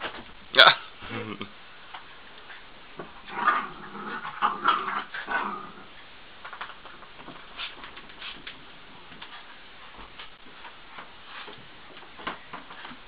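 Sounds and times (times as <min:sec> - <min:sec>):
dogs vocalizing while playing: 0:02.5 - 0:06.0
faint clicks and scuffling: 0:06.4 - 0:13.0.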